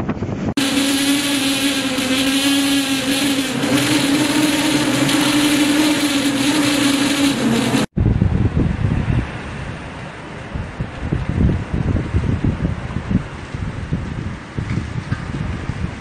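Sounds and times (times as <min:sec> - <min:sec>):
low rumble of wind: 0:00.0 - 0:00.6, 0:07.8 - 0:16.0
wind howling: 0:00.0 - 0:16.0
rush of wind and rain: 0:07.9 - 0:16.0.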